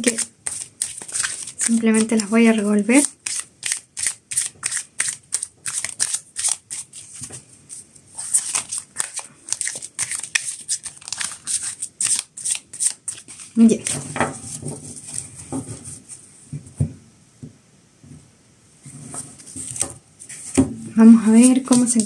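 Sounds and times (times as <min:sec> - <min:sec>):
cards being shuffled: 0:00.0 - 0:14.1, 0:21.3 - 0:22.0.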